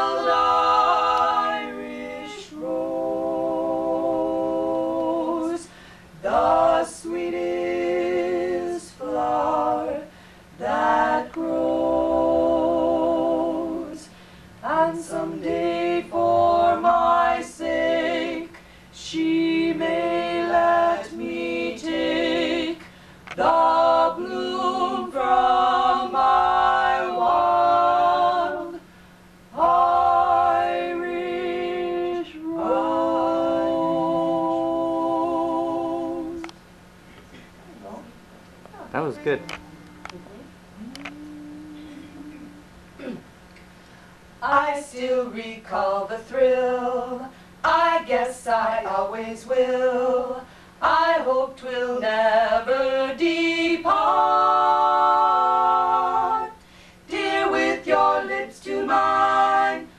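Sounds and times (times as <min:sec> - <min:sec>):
female trio singing a cappella: 0:00.0 - 0:36.6, 0:38.7 - 0:43.2, 0:44.4 - 0:59.9
singers breathing: 0:05.6 - 0:06.2, 0:10.1 - 0:10.5, 0:14.1 - 0:14.6, 0:18.6 - 0:19.0, 0:22.8 - 0:23.2, 0:50.4 - 0:50.8, 0:56.6 - 0:57.0.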